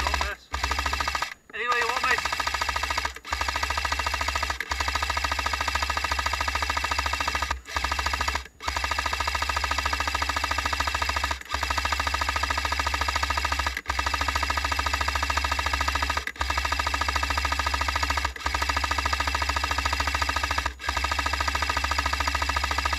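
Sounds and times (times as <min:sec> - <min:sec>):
airsoft gun full-auto rattle: 0:00.0 - 0:22.9.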